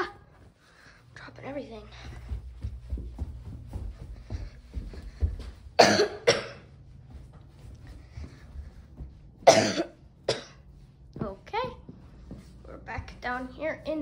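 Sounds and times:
person coughing: 5.8s - 6.7s, 9.4s - 10.7s.

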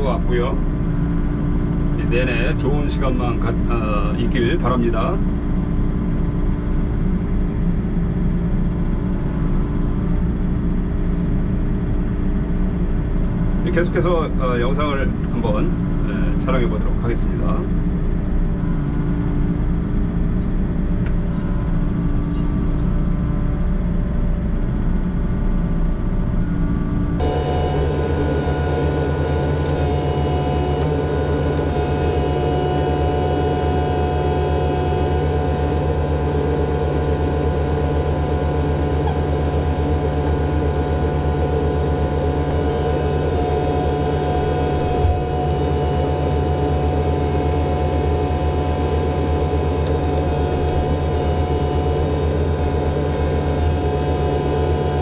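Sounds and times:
excavator engine and hydraulics: 0.0s - 55.0s.

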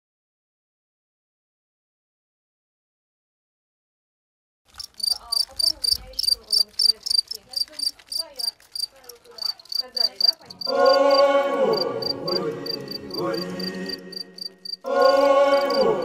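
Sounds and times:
crickets chirping: 4.7s - 16.0s
droning chant-like music: 10.6s - 16.0s.

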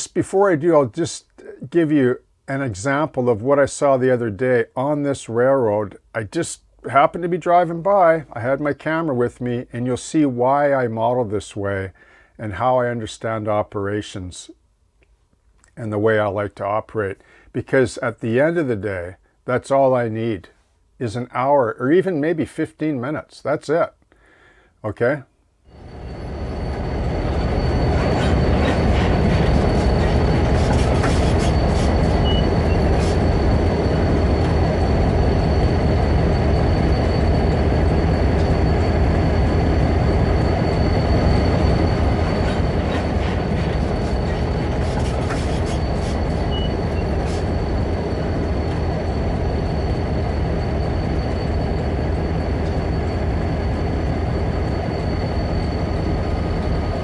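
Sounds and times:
constant high tone: 24.8s - 57.0s
diesel locomotive engine rumble: 25.7s - 57.0s
wheel clicks and squeals: 25.7s - 57.0s.

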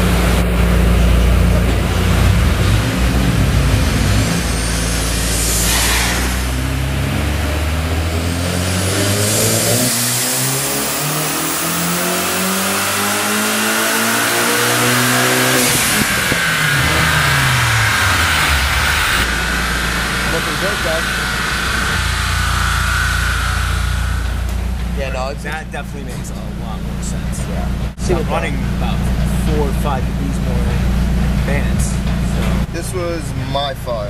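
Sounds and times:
turbocharged car engine revving: 0.0s - 34.0s
turbo hiss: 4.1s - 7.4s.

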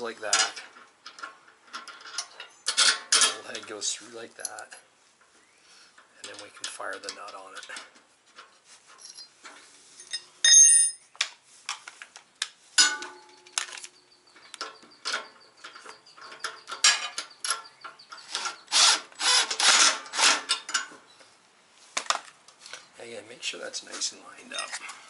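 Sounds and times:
ringing metal clink: 10.0s - 11.0s
steel parts clicking and knocking: 12.8s - 21.0s
impact driver bursts: 18.3s - 20.5s.

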